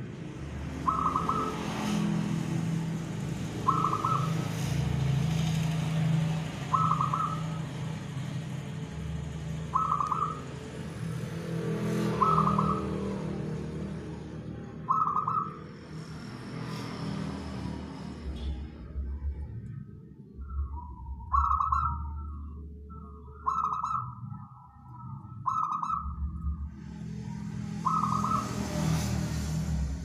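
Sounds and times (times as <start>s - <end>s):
dove cooing: 0.8s - 1.7s, 3.6s - 4.6s, 6.6s - 7.7s, 9.7s - 10.6s, 14.8s - 15.6s
steady low rumble: 18.8s - 23.4s.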